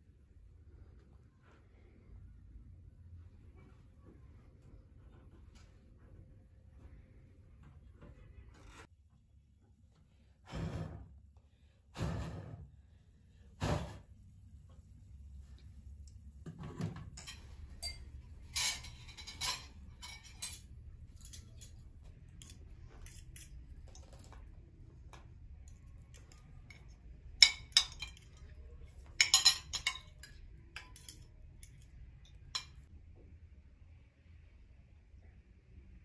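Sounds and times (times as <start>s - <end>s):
cutlery clinking on plates: 16.5s - 21.8s, 25.7s - 32.9s.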